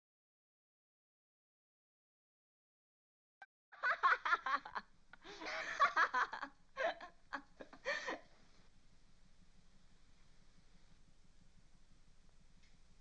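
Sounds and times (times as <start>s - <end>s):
giggling laughter: 3.8s - 8.3s
faint background hiss: 3.8s - 13.0s.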